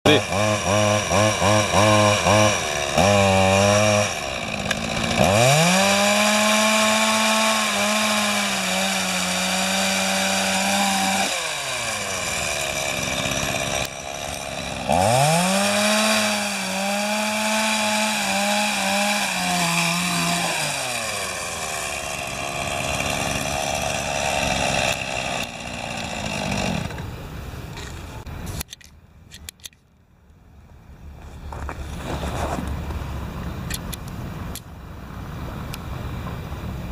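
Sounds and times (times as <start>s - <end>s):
chainsaw engine revving: 0.1s - 27.1s.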